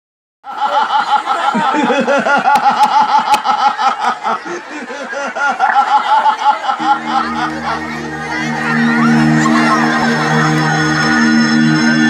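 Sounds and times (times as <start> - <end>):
crowd laughing: 0.4 - 12.0.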